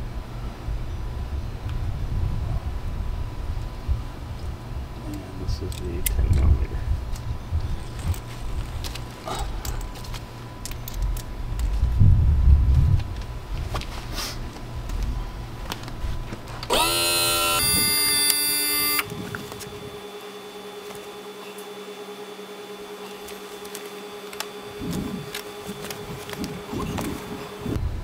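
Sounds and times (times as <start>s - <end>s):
electric motor whining: 16.6s - 27.8s.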